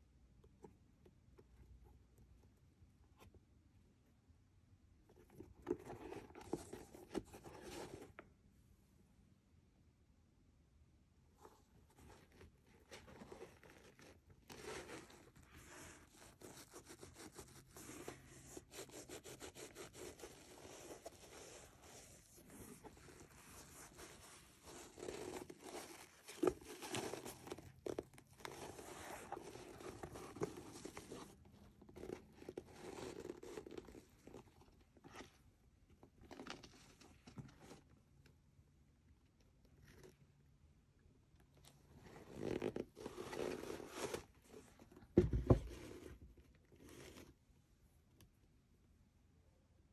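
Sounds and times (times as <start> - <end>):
hands handling leather sneakers: 16.0 - 35.4, 42.3 - 46.4.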